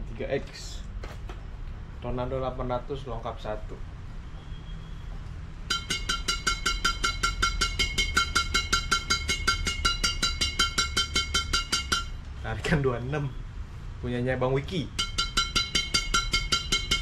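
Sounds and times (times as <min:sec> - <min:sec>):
racket strings pinging: 0:05.6 - 0:12.3, 0:14.9 - 0:17.0.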